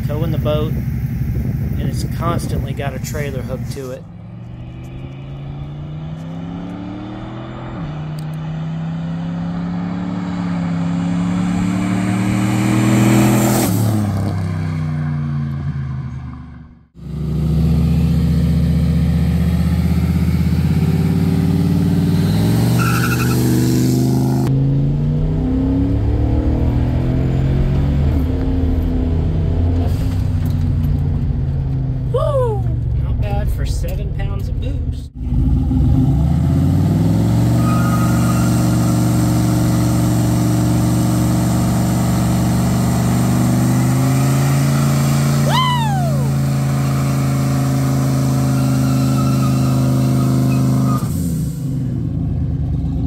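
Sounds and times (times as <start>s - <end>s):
truck engine accelerating past: 3.2s - 33.0s.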